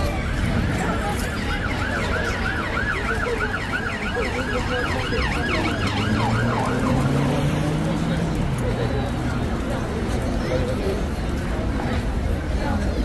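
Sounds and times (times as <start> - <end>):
siren yelping: 0.1 - 7.4.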